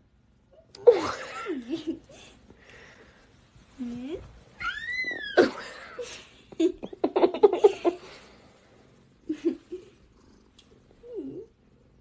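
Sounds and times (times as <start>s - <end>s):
giggling: 0.8s - 2.4s, 5.4s - 8.2s, 9.2s - 10.0s.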